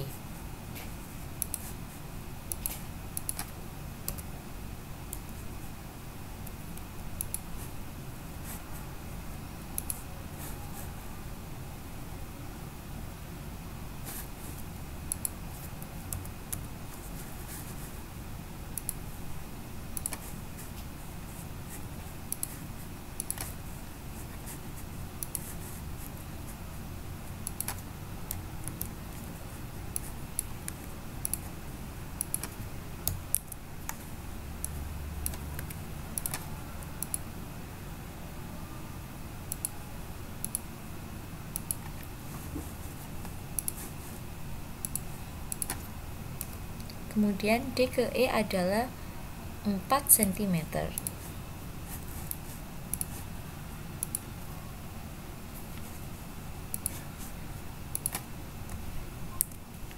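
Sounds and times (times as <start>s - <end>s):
low hum and hiss: 0.0s - 59.9s
keyboard and mouse clicks: 1.4s - 1.7s, 2.5s - 4.3s, 18.8s - 19.0s, 20.0s - 20.3s, 23.2s - 23.6s, 27.4s - 28.9s, 30.0s - 31.5s, 32.2s - 34.0s, 34.6s - 37.2s, 39.5s - 39.7s, 41.5s - 43.9s, 44.8s - 47.0s, 52.2s - 53.2s, 54.0s - 54.3s, 56.7s - 57.0s, 57.9s - 59.6s.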